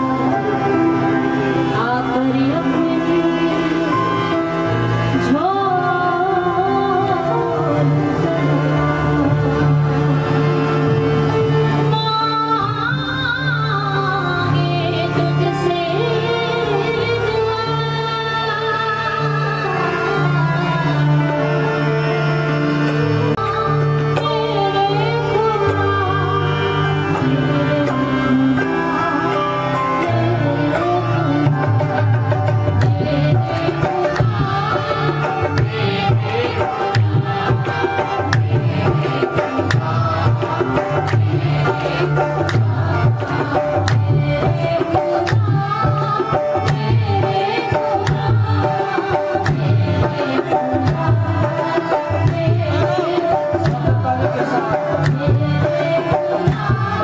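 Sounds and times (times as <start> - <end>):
sustained accompaniment: 0.0 - 57.0
woman singing: 1.8 - 4.2, 5.1 - 8.6, 11.9 - 21.4, 23.4 - 31.7, 32.8 - 37.9.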